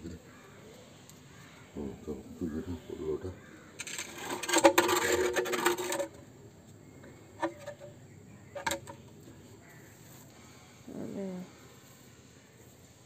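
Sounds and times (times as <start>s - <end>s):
clay stove scraping on concrete: 3.8s - 6.3s, 7.0s - 8.0s, 8.6s - 9.0s.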